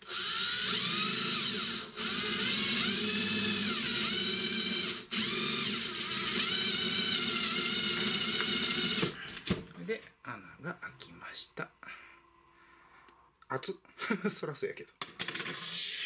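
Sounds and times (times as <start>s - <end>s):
impact driver motor running: 0.0s - 9.2s.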